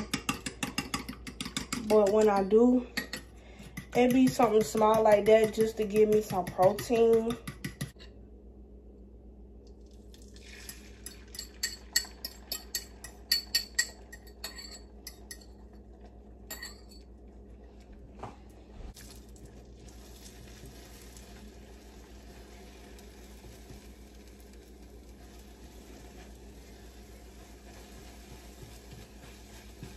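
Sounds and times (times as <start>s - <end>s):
food frying hiss: 18.9s - 29.9s.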